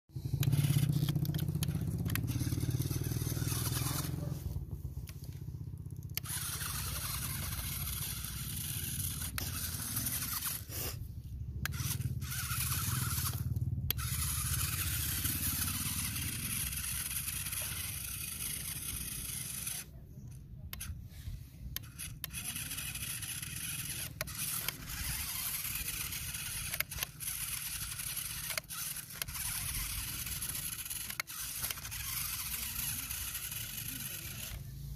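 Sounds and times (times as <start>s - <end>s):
toy tractor motor running: 0.1s - 34.9s.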